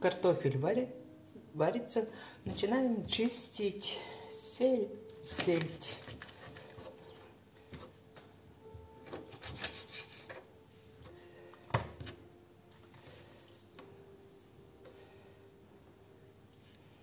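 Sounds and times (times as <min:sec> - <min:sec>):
knife scraping fish: 0:05.5 - 0:08.0, 0:09.0 - 0:10.5.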